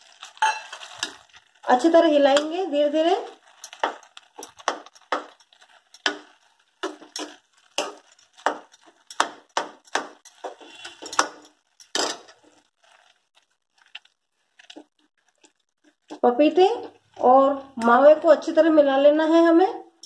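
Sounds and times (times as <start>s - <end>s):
metal spoon scraping metal pan: 3.6s - 9.2s, 9.8s - 12.5s.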